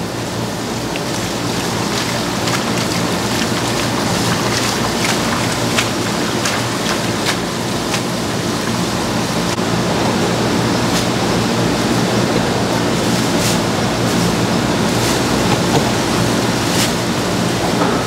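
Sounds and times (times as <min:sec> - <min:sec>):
water spraying into a basin: 0:00.3 - 0:09.5
hands splashing in water: 0:00.6 - 0:09.0.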